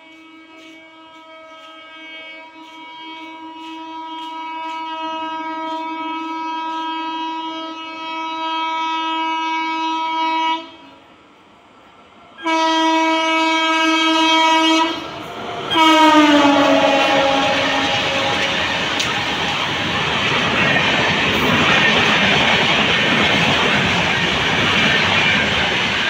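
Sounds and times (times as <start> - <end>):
train horn blasts: 0.0 - 11.1, 12.4 - 19.2.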